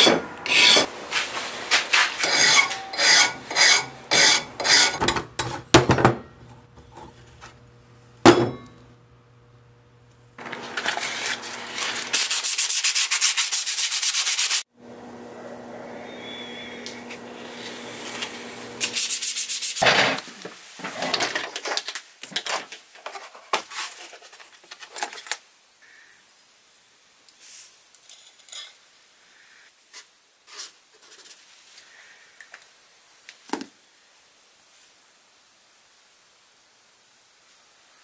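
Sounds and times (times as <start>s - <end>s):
knife blade being sanded: 0.0s - 0.9s, 1.9s - 5.0s, 10.8s - 14.6s, 17.5s - 19.8s
low motor hum: 14.8s - 18.9s.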